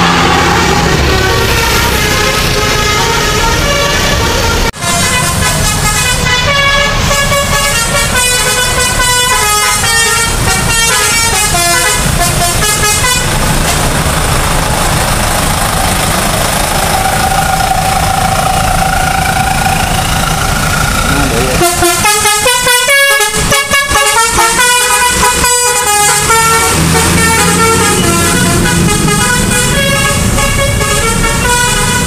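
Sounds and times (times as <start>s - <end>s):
musical air horn tune: 0.0s - 13.8s, 21.2s - 32.0s
long held horn tone: 0.0s - 13.9s, 21.2s - 32.0s
traffic noise: 0.0s - 32.0s.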